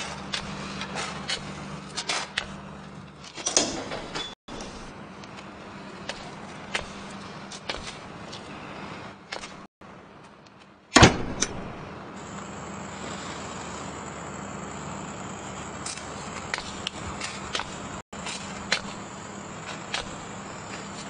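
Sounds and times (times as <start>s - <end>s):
steady low hum: 0.0s - 21.0s
heavy door slamming: 10.9s - 12.0s.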